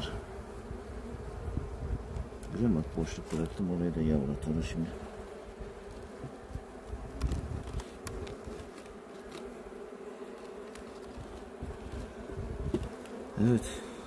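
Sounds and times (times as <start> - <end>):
honeybees buzzing: 0.0 - 14.0
metal hive tool clicking on wood: 7.1 - 9.6.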